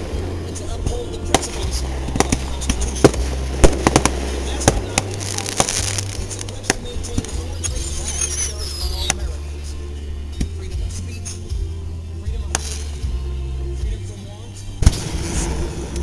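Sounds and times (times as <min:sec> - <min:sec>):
fireworks bangs and crackles: 0:01.2 - 0:09.3, 0:12.5 - 0:13.0, 0:14.8 - 0:16.0.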